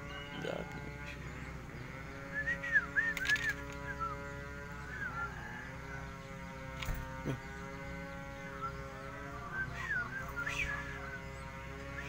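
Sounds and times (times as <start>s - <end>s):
songbird chirping: 0.0s - 12.0s.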